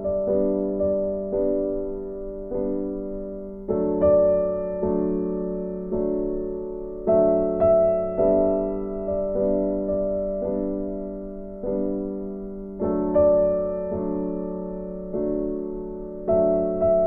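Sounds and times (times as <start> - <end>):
soft piano chords: 0.0 - 17.0.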